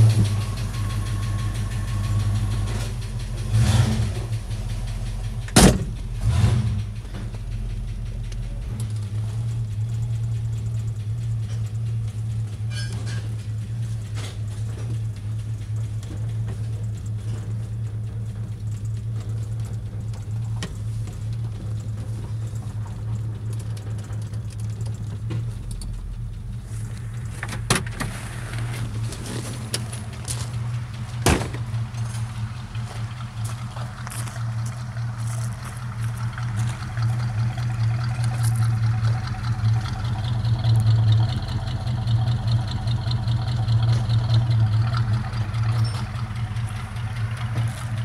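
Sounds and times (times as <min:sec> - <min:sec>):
car engine idling: 0:00.0 - 0:48.0
sharp clunks: 0:05.5 - 0:06.0, 0:31.2 - 0:32.2.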